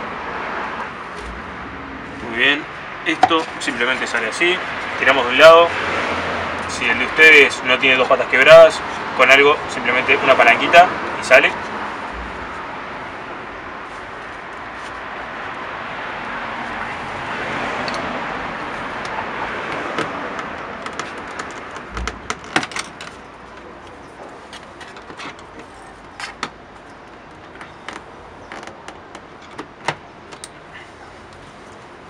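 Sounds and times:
broad rushing noise: 0.0s - 24.8s.

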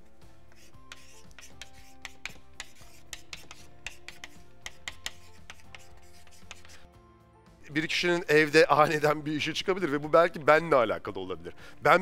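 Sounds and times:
soft background music: 0.0s - 12.0s
marker writing on whiteboard: 0.5s - 6.8s.

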